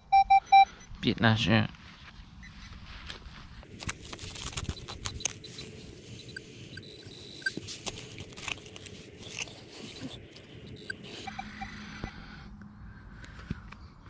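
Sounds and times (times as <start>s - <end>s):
metal detector beeps: 0.0s - 1.0s, 4.6s - 7.6s, 9.3s - 12.1s
soil digging and scraping: 2.6s - 11.7s.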